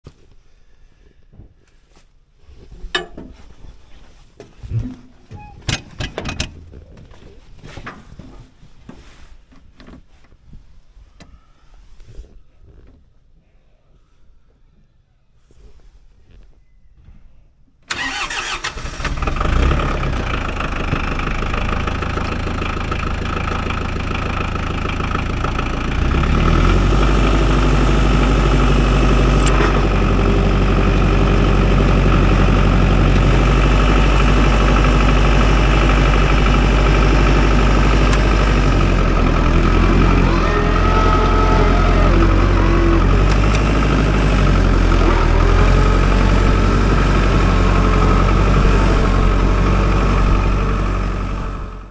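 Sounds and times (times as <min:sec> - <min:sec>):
tractor diesel engine idling: 0:17.9 - 0:51.9.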